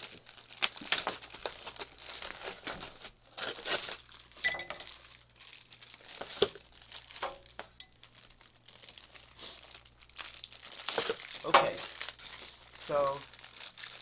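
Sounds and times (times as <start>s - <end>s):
plastic packaging crinkling: 0.0s - 14.0s.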